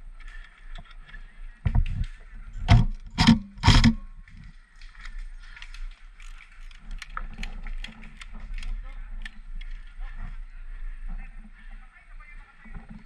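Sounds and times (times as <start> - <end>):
faint clicks: 0.2 - 10.1.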